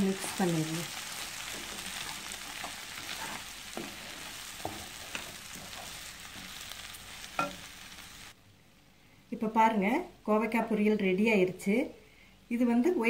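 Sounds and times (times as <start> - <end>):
vegetables sizzling in a pan: 0.0 - 8.4
spatula scraping pan: 0.9 - 8.0.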